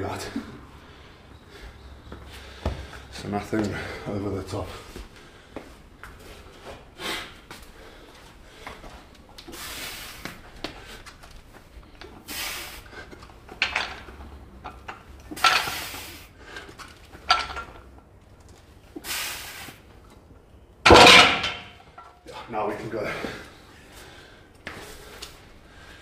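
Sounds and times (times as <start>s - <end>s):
forceful hissing breaths: 9.4s - 11.1s, 11.9s - 13.2s, 15.3s - 16.8s, 18.9s - 19.9s
barbell plates clinking: 17.2s - 17.8s, 20.9s - 22.2s.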